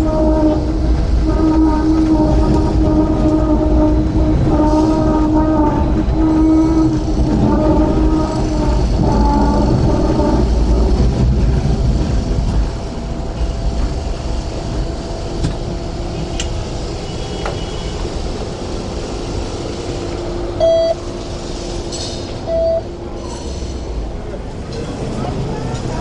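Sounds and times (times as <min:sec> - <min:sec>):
tram rumble: 0:00.0 - 0:26.0
short electronic beeps: 0:20.6 - 0:21.0, 0:22.5 - 0:22.8.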